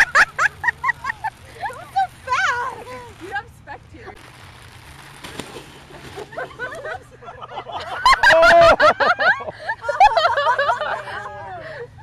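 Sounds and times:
people laughing loudly: 0.0s - 1.9s, 6.2s - 11.8s
excited voices: 7.5s - 8.8s.

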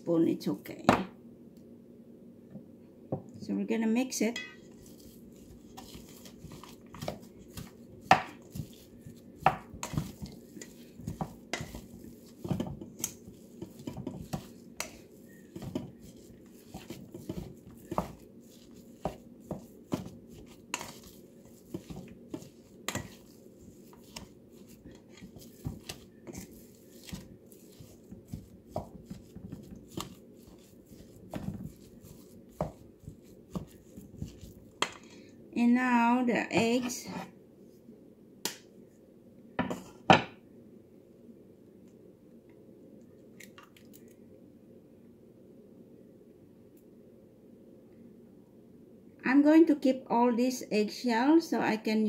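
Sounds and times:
spatula scraping metal bowl: 4.4s - 34.6s.

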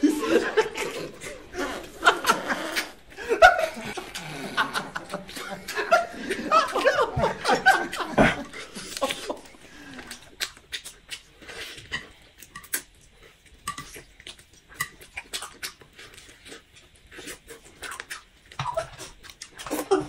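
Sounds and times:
wet chewing and sucking: 7.9s - 19.9s.

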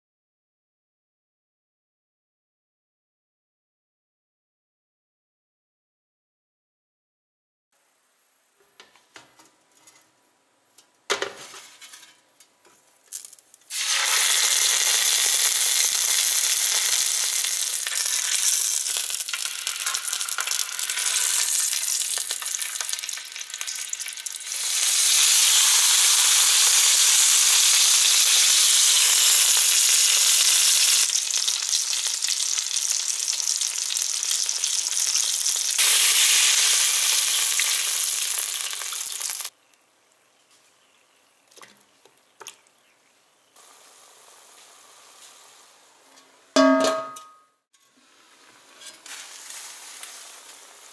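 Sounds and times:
meat sizzling in butter: 13.7s - 39.5s, 48.4s - 50.9s
stock hissing in hot pan: 13.7s - 39.5s, 43.6s - 45.9s, 49.0s - 50.9s.

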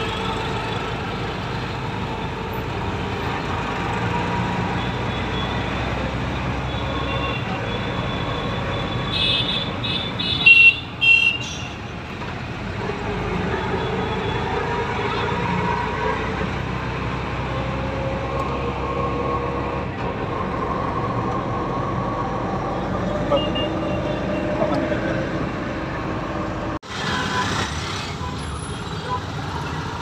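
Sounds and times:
auto-rickshaw running noise: 0.0s - 30.0s
vehicle horn honking: 6.7s - 11.8s, 23.3s - 24.5s.

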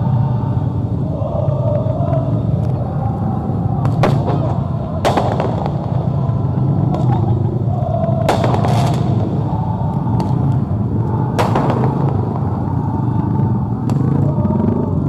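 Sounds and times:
dense crowd din: 0.0s - 15.0s
firework bangs: 3.8s - 14.4s.

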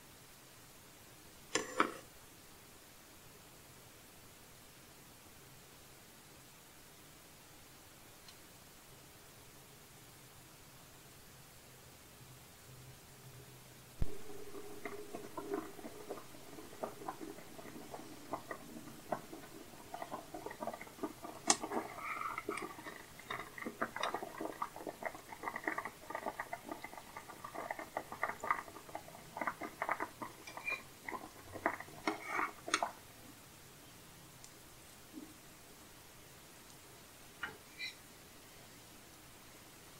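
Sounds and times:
water boiling and bubbling: 14.0s - 33.2s.

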